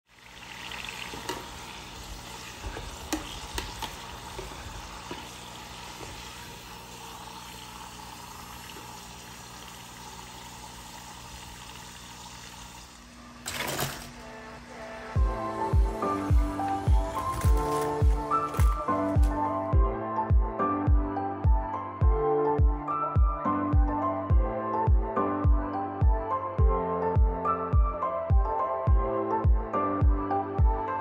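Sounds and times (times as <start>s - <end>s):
oil bubbling and sizzling: 0.1s - 13.2s.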